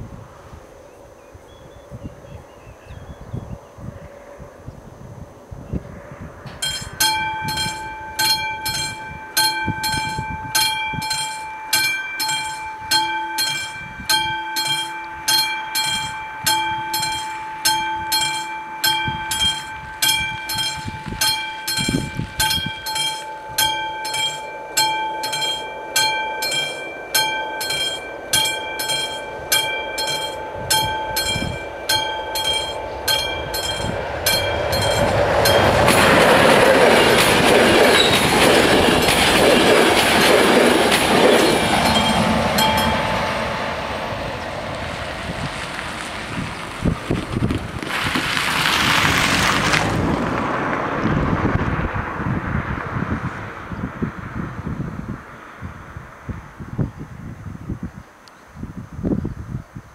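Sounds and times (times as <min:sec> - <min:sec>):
train rumbling: 0:04.0 - 0:55.3
level crossing bells ringing: 0:06.5 - 0:44.2.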